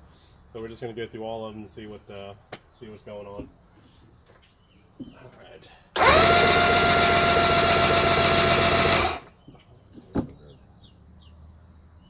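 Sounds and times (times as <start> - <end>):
electric starter whine: 6.0 - 9.3.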